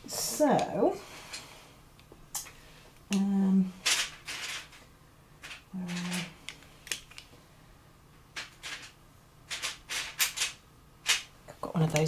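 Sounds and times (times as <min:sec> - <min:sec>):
coloured pencils rattling: 0:03.8 - 0:04.8, 0:05.4 - 0:07.2, 0:08.3 - 0:11.3.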